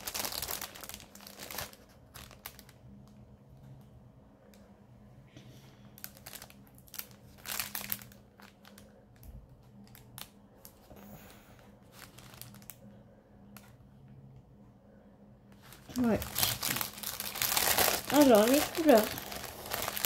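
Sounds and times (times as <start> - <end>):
plastic packaging crinkling: 0.0 - 2.9, 6.0 - 10.9, 11.8 - 12.9, 15.6 - 20.0
faint low hum: 0.0 - 20.0.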